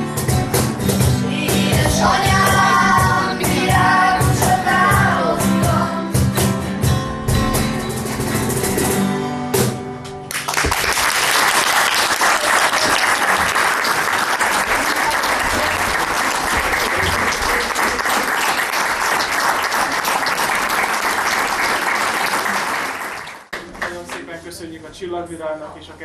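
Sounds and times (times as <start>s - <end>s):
acoustic guitars playing chords: 0.0s - 10.8s
audience applause: 10.3s - 24.2s.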